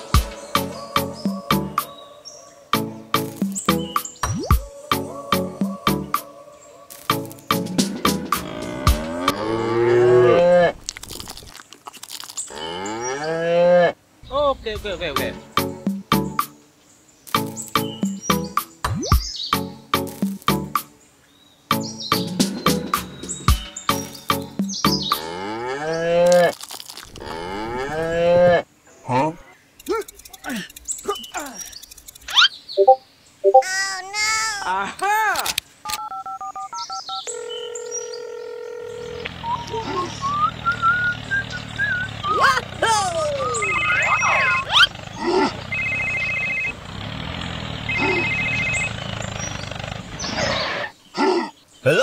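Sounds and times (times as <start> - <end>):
cow mooing: 8.4 - 10.8, 27.2 - 28.6, 37.9 - 39.5
phone ringtone: 32.8 - 33.6, 36.0 - 39.2, 43.5 - 44.7, 45.7 - 46.8, 47.9 - 49.0
tractor engine droning: 38.7 - 50.9
short cries: 47.9 - 48.7.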